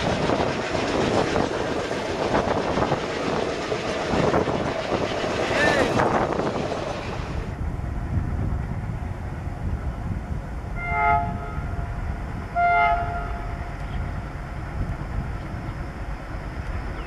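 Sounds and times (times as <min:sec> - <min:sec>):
low engine rumble: 0:00.0 - 0:17.0
locomotive air horn: 0:10.8 - 0:11.7, 0:12.5 - 0:13.5.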